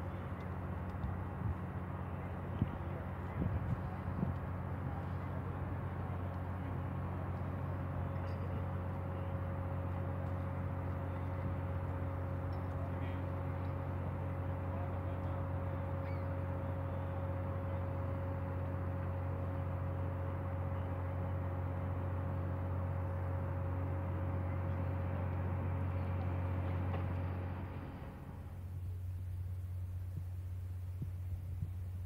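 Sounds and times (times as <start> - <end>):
boat engine drone: 0.0 - 32.0
constant hum: 0.0 - 32.0
faint bird chirps: 16.0 - 16.5.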